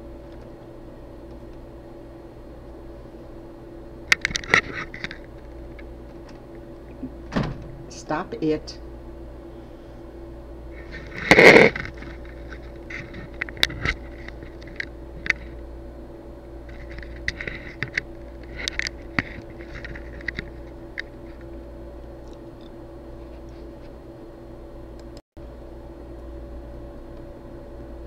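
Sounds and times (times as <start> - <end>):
steady low hum: 0.0 - 28.0
handling clicks and scrapes: 4.1 - 6.4, 10.8 - 15.6, 16.7 - 21.5
loud rustling scrape: 10.7 - 14.5.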